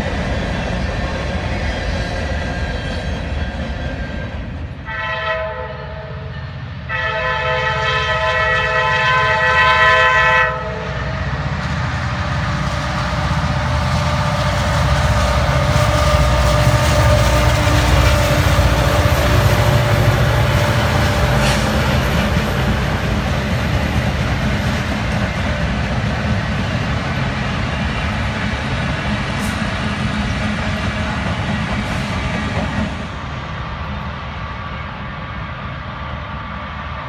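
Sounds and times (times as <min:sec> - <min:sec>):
locomotive engines rumbling: 0:00.0 - 0:05.0, 0:05.6 - 0:37.0
locomotive air horn chord: 0:04.8 - 0:11.2, 0:14.1 - 0:21.9.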